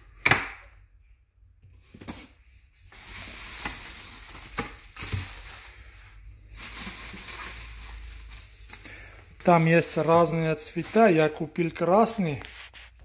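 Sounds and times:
bubble wrap crinkling: 2.8 - 13.0.

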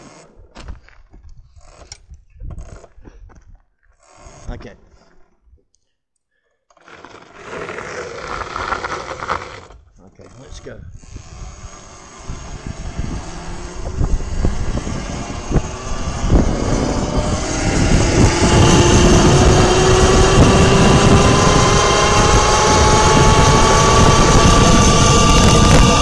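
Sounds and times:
wind rush on microphone: 1.2 - 3.6, 10.4 - 26.0
electric bike motor whining: 10.4 - 26.0.

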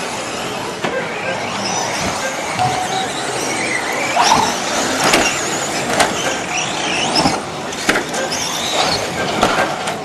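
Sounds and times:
electric motors whining: 0.0 - 9.3.

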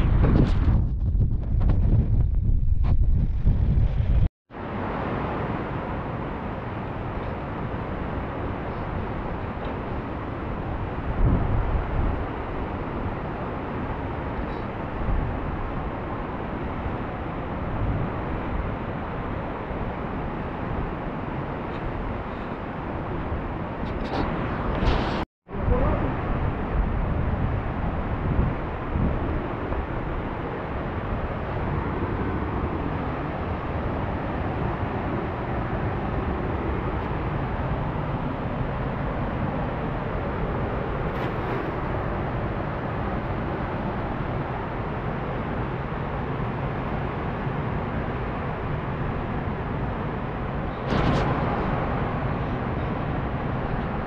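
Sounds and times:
river rushing over rapids: 4.6 - 23.7.

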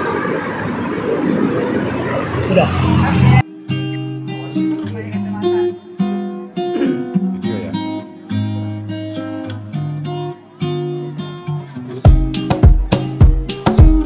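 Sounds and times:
acoustic guitar plucked notes: 3.2 - 14.0.

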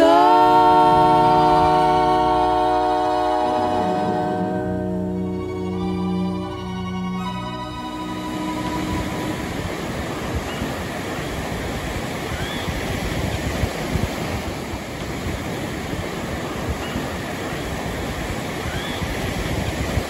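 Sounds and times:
ocean surf breaking on beach: 0.0 - 5.8, 7.7 - 20.0
wind on microphone: 8.1 - 20.0.

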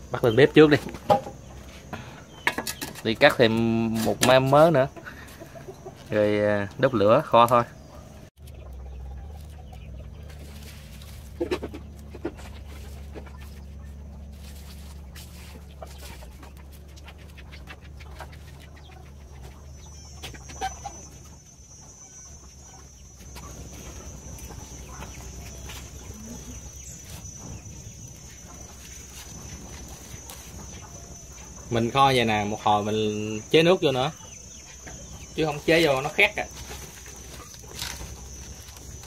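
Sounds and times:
chickens clucking: 0.0 - 39.0
dried leaves crackling in fire: 10.2 - 16.2, 23.3 - 33.9, 35.3 - 39.0.

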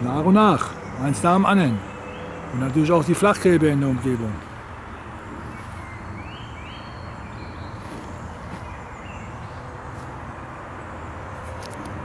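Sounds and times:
bird chirps: 0.5 - 4.3, 4.9 - 9.8.

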